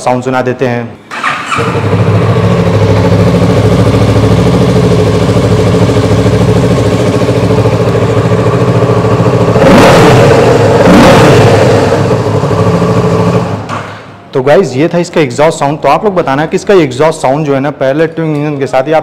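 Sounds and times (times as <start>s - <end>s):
motorcycle engine revving: 1.1s - 13.8s
motorcycle engine idling: 1.5s - 13.7s.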